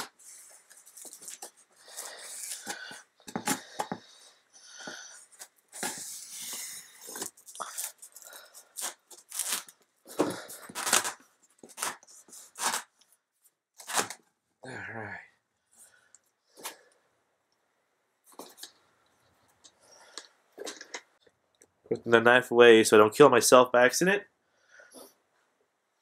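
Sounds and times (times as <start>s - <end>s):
tape tearing and squeaking: 0.0s - 3.9s, 5.3s - 13.0s, 13.8s - 14.3s
cardboard rustling: 0.0s - 4.0s
knife scraping packing tape: 5.8s - 9.8s, 10.6s - 13.0s, 13.8s - 14.2s.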